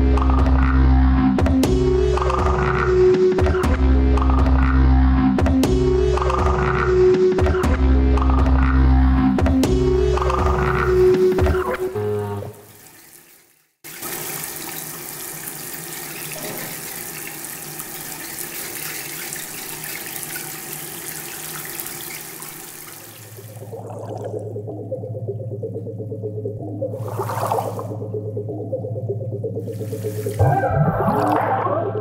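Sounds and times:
music: 0.0s - 12.7s, 24.4s - 32.0s
running water: 11.3s - 24.5s, 27.0s - 28.0s, 29.6s - 31.4s
low steady musical tone: 23.3s - 30.4s.

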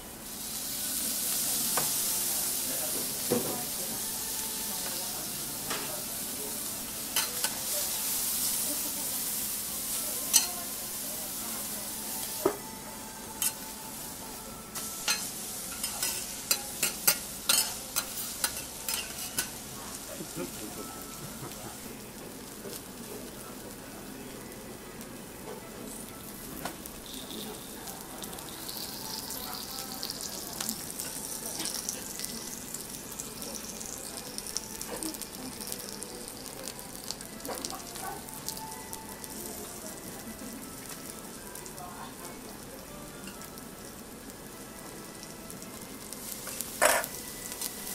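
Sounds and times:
food sizzling on a griddle: 0.0s - 47.9s.

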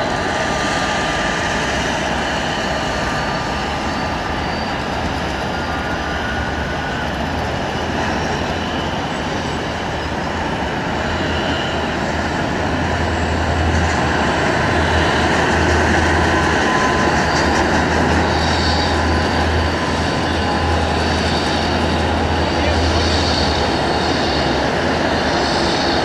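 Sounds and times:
jet engine rumble and whine: 0.0s - 26.0s.

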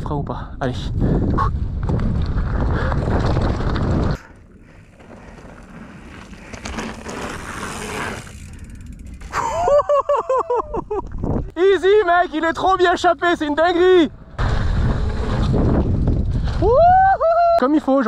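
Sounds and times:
wind on microphone: 0.8s - 4.2s, 10.7s - 11.6s, 14.1s - 17.2s
bike rattling over dirt: 1.2s - 9.9s, 11.0s - 17.1s.

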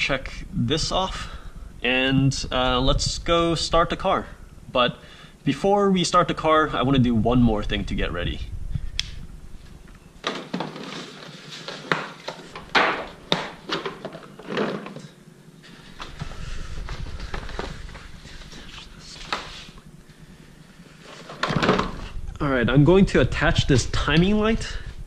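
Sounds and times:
cardboard and paper rustling: 10.2s - 15.1s, 15.7s - 19.8s.

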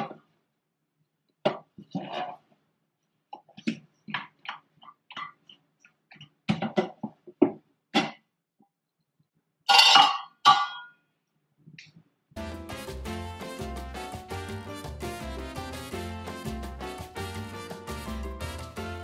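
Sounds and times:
cookware clattering: 9.7s - 10.9s
background music: 12.4s - 19.0s.

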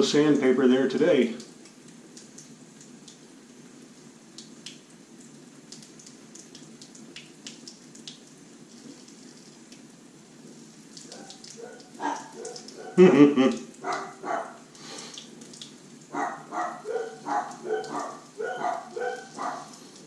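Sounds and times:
low hiss: 12.6s - 16.2s.

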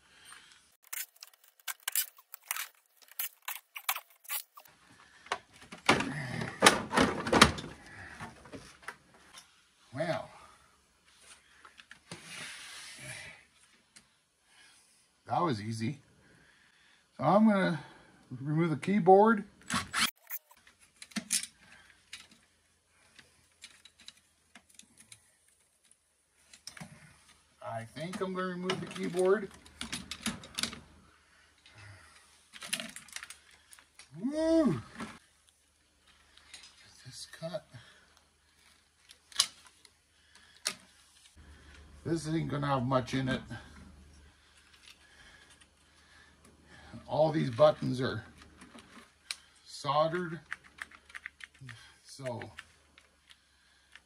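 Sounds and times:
plastic and metal parts clicking: 0.8s - 4.7s, 50.1s - 54.0s.

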